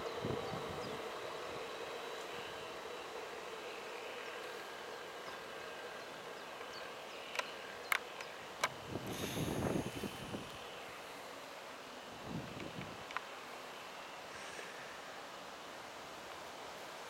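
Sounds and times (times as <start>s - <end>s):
light hum: 0.0s - 17.0s
sharp clicks: 7.3s - 8.8s.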